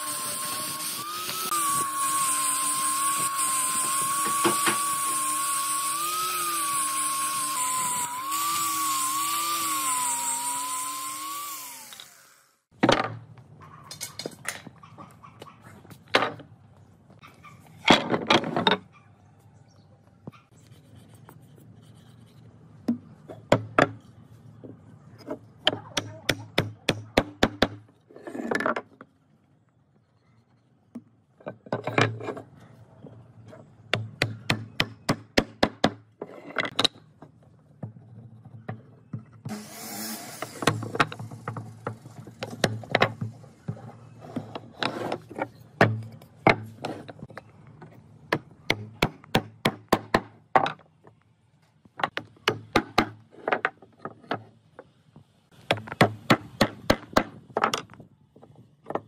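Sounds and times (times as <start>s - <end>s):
wooden pieces knocking: 55.6s - 59.0s.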